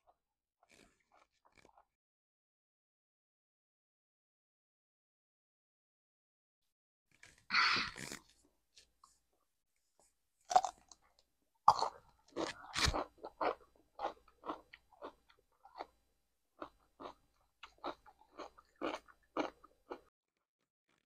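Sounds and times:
crunchy chewing: 0.6 - 1.9, 10.5 - 11.1, 11.7 - 16.0, 16.6 - 20.1
biting into cucumber: 11.7 - 15.2.

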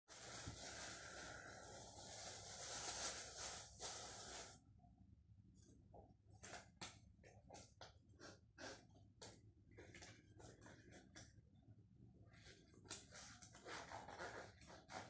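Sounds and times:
steady hiss: 0.1 - 4.6.

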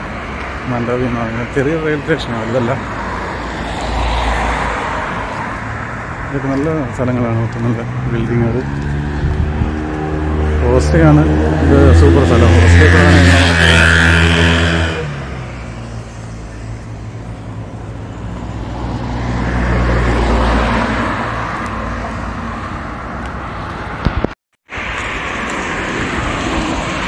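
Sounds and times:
street traffic noise: 0.0 - 27.0
vehicle passing: 0.3 - 24.1, 24.8 - 27.0
motorcycle passing: 7.1 - 22.8.

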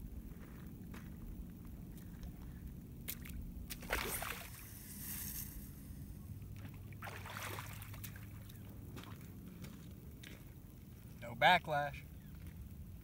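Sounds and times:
fishing rod whoosh: 3.8 - 6.0.

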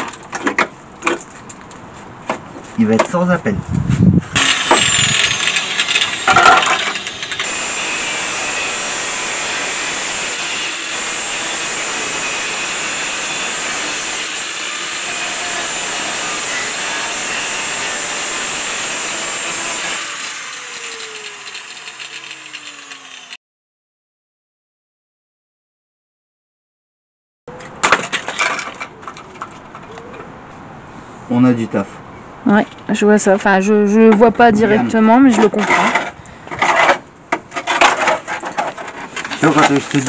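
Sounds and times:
angle grinder cutting steel: 4.4 - 23.4.

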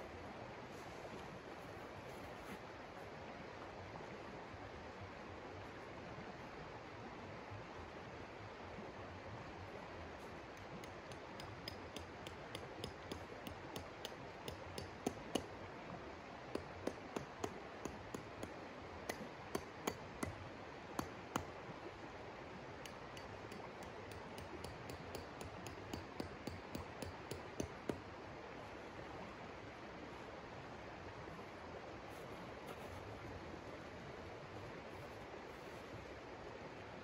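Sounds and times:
sharp light clicks and clinks: 10.8 - 15.5.

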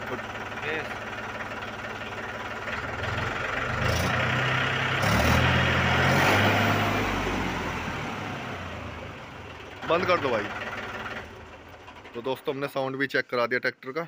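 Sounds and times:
tractor diesel engine revving: 0.0 - 12.8.

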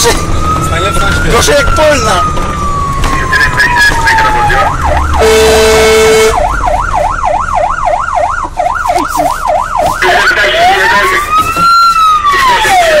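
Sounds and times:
siren slow wail: 0.2 - 13.0
electronic siren yelp: 0.4 - 13.0
air horn blast: 5.2 - 6.4.

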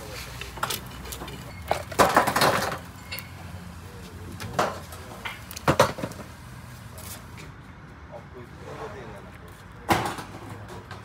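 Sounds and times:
metal tools clattering and knocking: 0.6 - 3.4.

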